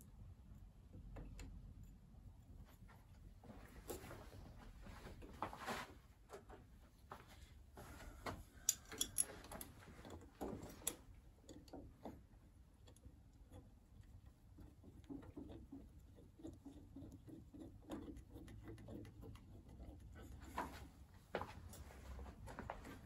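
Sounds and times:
metal clicks and taps: 0:08.6 - 0:12.2.

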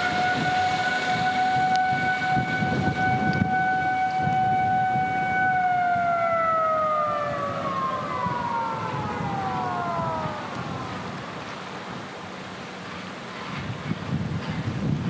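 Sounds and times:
warning siren winding down: 0:00.0 - 0:11.8
steady rushing noise: 0:00.0 - 0:15.0.

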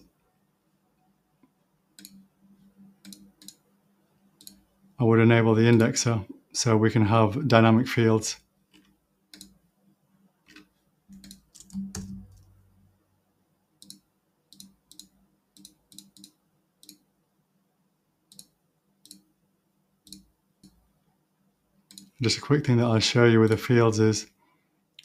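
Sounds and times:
computer mouse clicks: 0:01.4 - 0:02.3, 0:03.0 - 0:03.6, 0:04.4 - 0:04.6, 0:08.7 - 0:09.6, 0:10.4 - 0:12.5, 0:13.8 - 0:17.0, 0:18.3 - 0:19.3, 0:20.0 - 0:20.8, 0:21.9 - 0:22.2.

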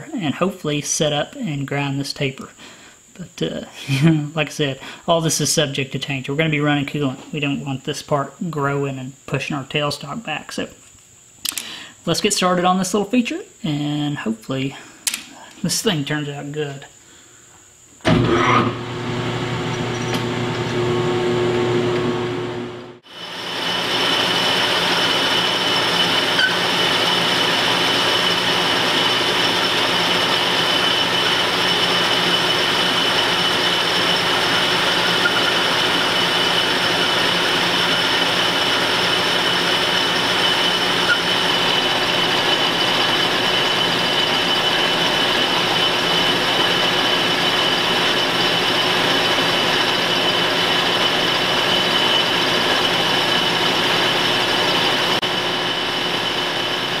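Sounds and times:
metal lathe running: 0:18.1 - 0:57.0.

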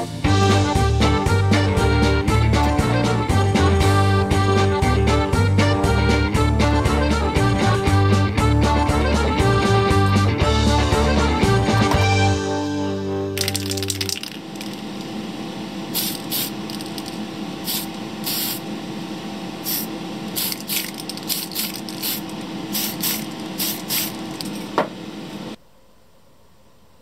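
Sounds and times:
steady hiss and hum: 0:13.4 - 0:27.0
aerosol can spraying in spurts: 0:15.9 - 0:18.6, 0:19.6 - 0:24.6.

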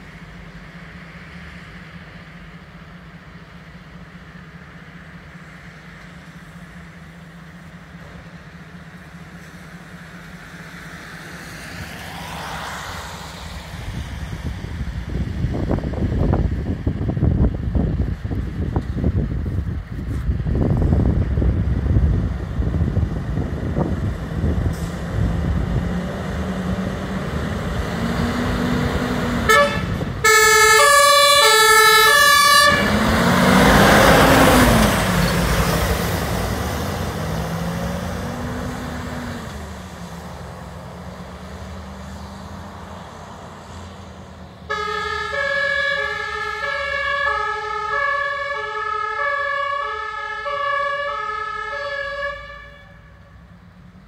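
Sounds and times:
engine and road noise rush: 0:00.0 - 0:54.0
fire engine engine running: 0:00.0 - 0:54.0
two-tone siren: 0:29.5 - 0:33.0, 0:44.7 - 0:53.4.

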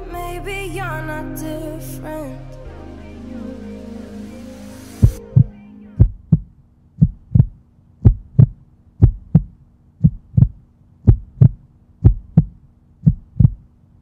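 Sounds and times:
heartbeat thumps: 0:05.0 - 0:13.7.

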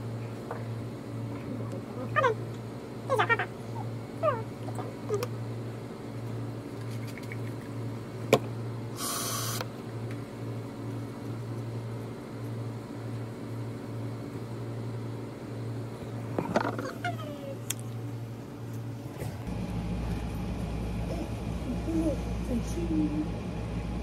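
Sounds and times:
short hiss: 0:09.0 - 0:09.6
low hum: 0:14.1 - 0:24.0.

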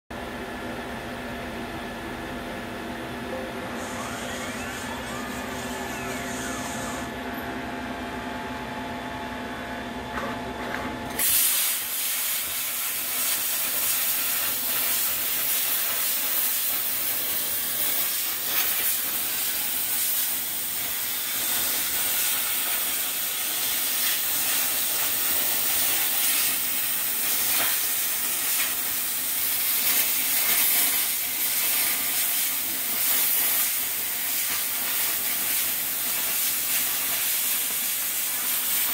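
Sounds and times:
machine hum with fixed tones: 0:00.1 - 0:38.9
plasma cutter torch hissing: 0:11.1 - 0:38.9.

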